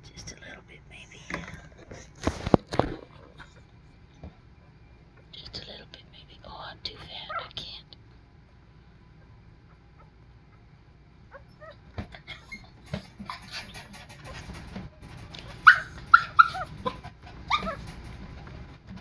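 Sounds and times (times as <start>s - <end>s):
puppies whimpering and squealing: 11.3s - 14.8s, 15.4s - 18.1s.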